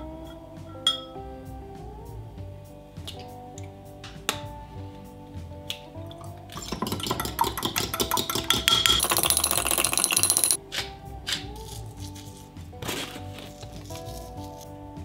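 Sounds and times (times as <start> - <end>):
soft background music: 0.0 - 15.0
metal spoon clinking on glass: 6.6 - 10.6.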